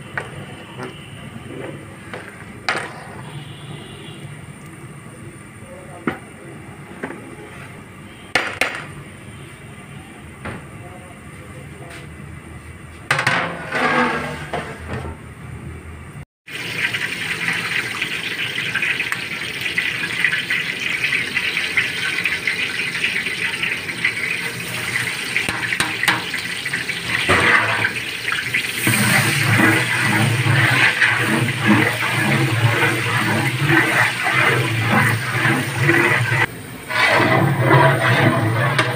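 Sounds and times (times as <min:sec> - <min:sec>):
onions sizzling in oil: 0:16.5 - 0:38.9
ladle stirring onions: 0:21.6 - 0:38.9.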